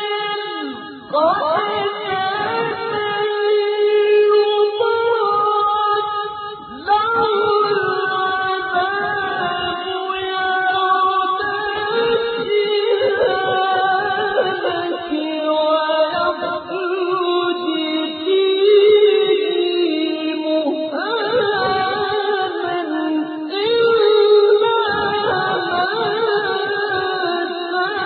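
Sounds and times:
person chanting melodically: 0:00.0 - 0:28.0.

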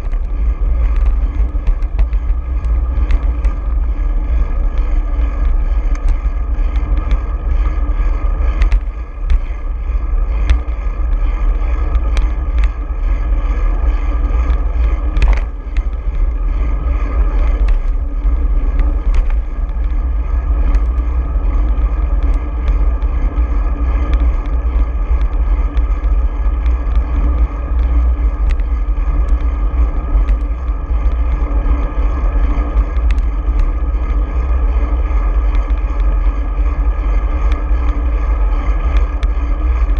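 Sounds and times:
road rumble: 0:00.0 - 0:39.9
sharp clicks and knocks from bumps: 0:00.0 - 0:39.9
wind buffeting: 0:00.0 - 0:39.9.

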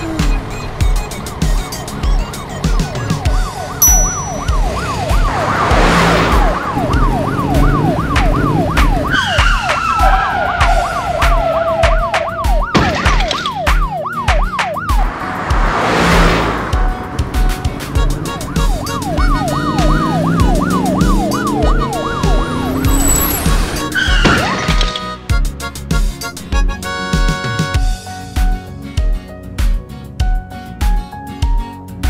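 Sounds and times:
police siren yelping: 0:03.0 - 0:15.1, 0:17.6 - 0:25.0
background music with beat: 0:05.8 - 0:15.7, 0:16.7 - 0:23.0, 0:25.2 - 0:32.0.

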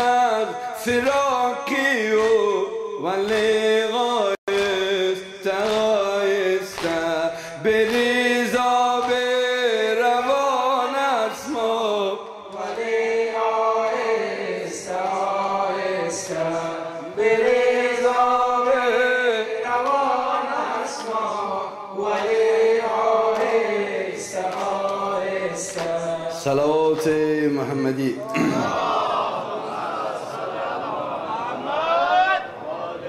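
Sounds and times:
men chanting a lament: 0:00.0 - 0:33.0
hands slapping chests: 0:02.2 - 0:02.6, 0:03.2 - 0:03.7, 0:04.5 - 0:09.4, 0:23.3 - 0:23.6, 0:24.4 - 0:26.1.

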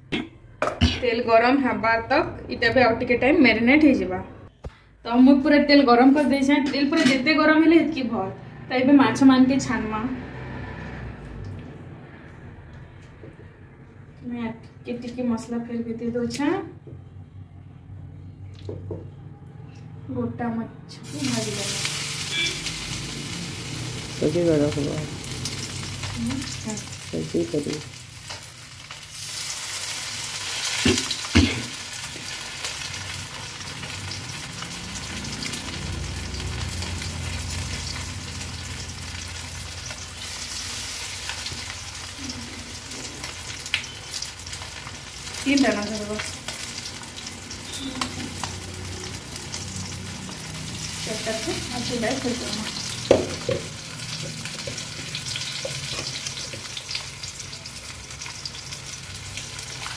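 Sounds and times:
fish sizzling in hot oil: 0:21.0 - 0:59.9.

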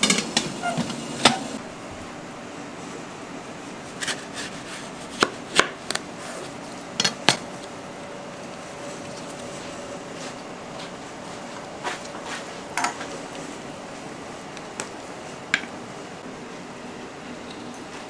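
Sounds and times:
knife cutting fruit: 0:04.0 - 0:06.5.

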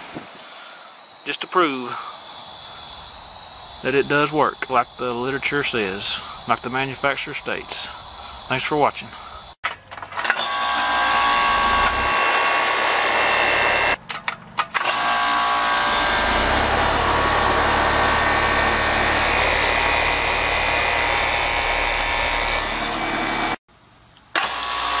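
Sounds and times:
whining compressor and fan: 0:10.2 - 0:14.0, 0:14.8 - 0:23.6
heat pump humming: 0:10.6 - 0:14.0, 0:15.3 - 0:23.6
deep rumble: 0:11.2 - 0:12.2.

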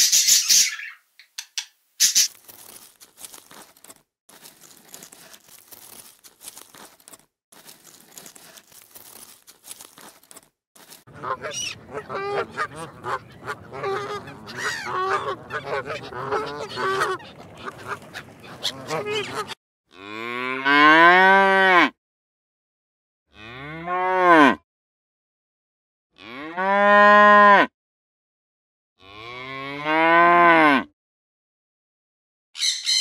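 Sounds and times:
geese honking: 0:11.1 - 0:19.6
cattle mooing: 0:11.1 - 0:21.9, 0:26.2 - 0:27.7.

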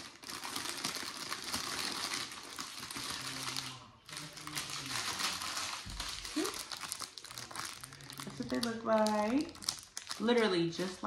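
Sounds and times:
cardboard and plastic packaging rustling: 0:00.0 - 0:11.0.

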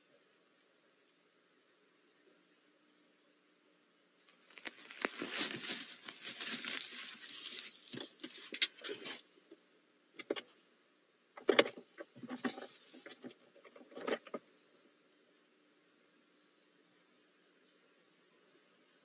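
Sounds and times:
claw scrapes and rustling: 0:04.4 - 0:09.3, 0:11.4 - 0:14.5.

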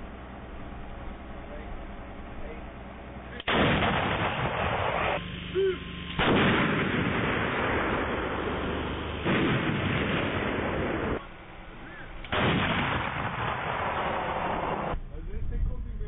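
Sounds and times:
long loud rumble: 0:00.0 - 0:16.0
howitzer firing blast: 0:03.3 - 0:05.3, 0:06.0 - 0:15.0.

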